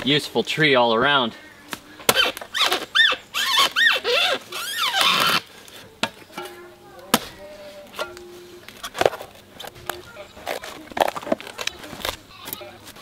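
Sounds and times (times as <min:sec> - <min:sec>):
machete chopping wood: 0:02.1 - 0:02.9
high squealing calls: 0:02.2 - 0:05.4.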